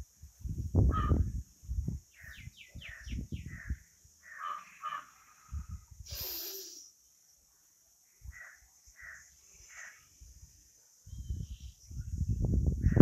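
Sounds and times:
crow cawing: 0:03.6 - 0:05.2, 0:08.3 - 0:10.0.

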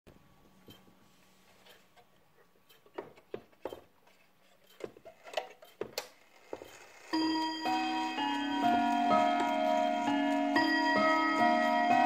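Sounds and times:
clock ticking: 0:02.5 - 0:04.0, 0:04.6 - 0:12.0.

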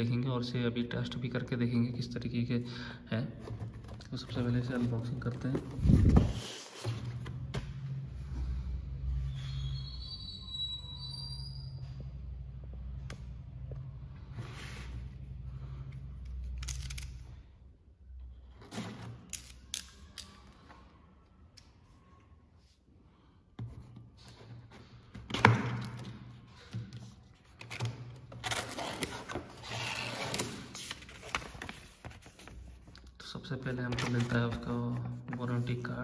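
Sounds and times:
cardboard rustling and scraping: 0:03.4 - 0:07.6, 0:27.4 - 0:32.9.

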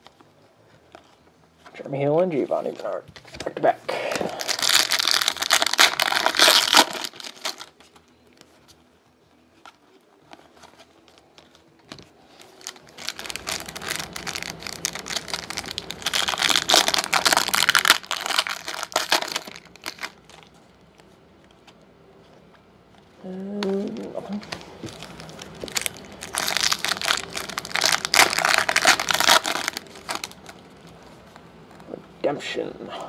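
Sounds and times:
foil wrapper crinkling: 0:04.2 - 0:07.8, 0:12.3 - 0:21.1, 0:23.8 - 0:31.0.

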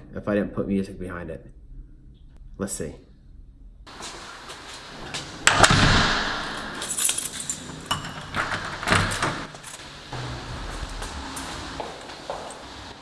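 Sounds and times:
door shutting: 0:05.2 - 0:13.0
keys jangling in lock: 0:06.6 - 0:09.8.

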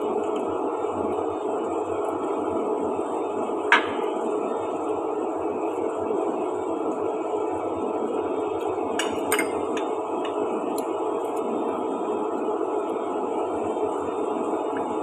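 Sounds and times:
chopsticks clinking on dishes: 0:09.0 - 0:09.9.

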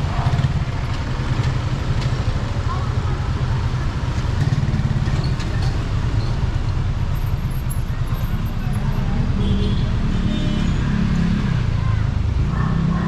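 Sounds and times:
vehicle engines idling: 0:00.0 - 0:09.3
traffic noise: 0:00.0 - 0:13.0.

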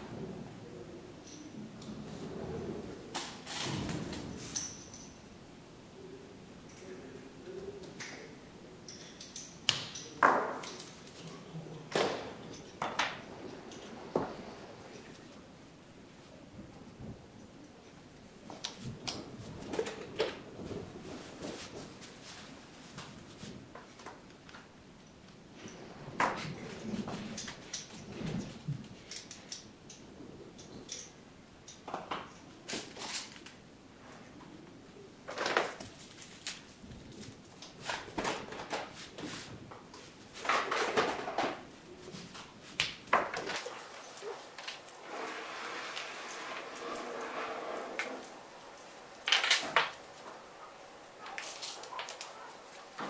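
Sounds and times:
small parts clicking and rattling: 0:48.2 - 0:50.2.

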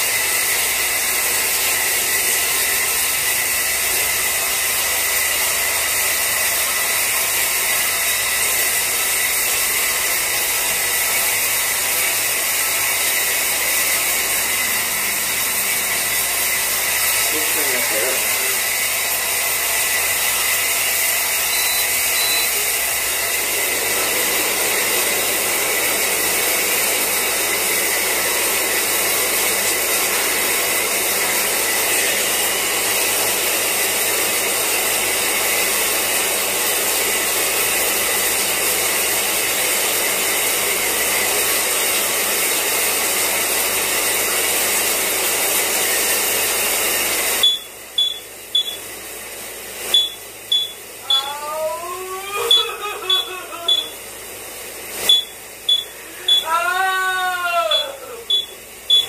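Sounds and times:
shower water running: 0:00.0 - 0:59.0
smoke alarm beeping: 0:21.4 - 0:22.8, 0:47.4 - 0:48.9, 0:49.9 - 0:51.3, 0:52.5 - 0:54.0, 0:55.0 - 0:56.5, 0:57.7 - 0:59.0.

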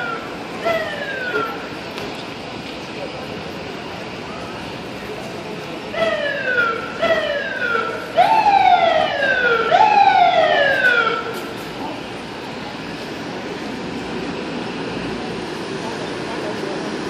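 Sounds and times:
fire engine siren whoops: 0:00.0 - 0:01.7, 0:05.9 - 0:11.5.

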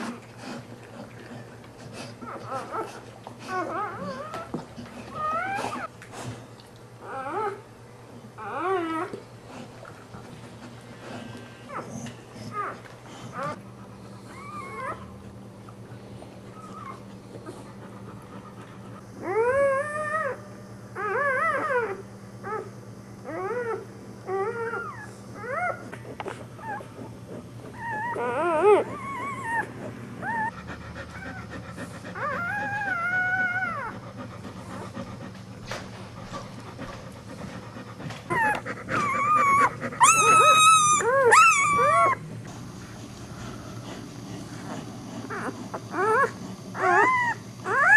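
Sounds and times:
puppies crying: 0:03.5 - 0:05.9, 0:14.2 - 0:15.1, 0:26.6 - 0:34.1, 0:38.3 - 0:42.3, 0:45.2 - 0:47.9.

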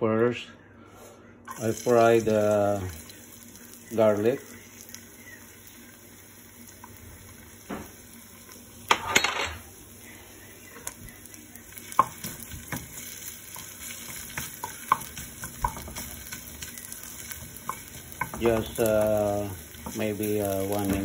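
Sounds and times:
ginger sizzling in oil: 0:01.5 - 0:21.0
spatula clattering: 0:11.9 - 0:21.0.

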